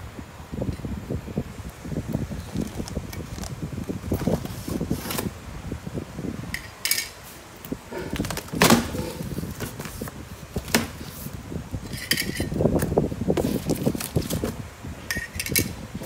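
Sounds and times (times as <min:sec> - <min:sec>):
taped flaps crackling open: 0:02.2 - 0:05.3
cardboard box rustling and scraping: 0:13.4 - 0:14.6.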